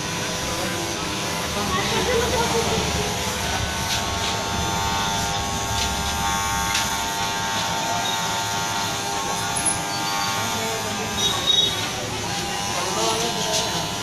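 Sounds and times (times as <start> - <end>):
electric hair clipper buzzing: 0.0 - 14.0.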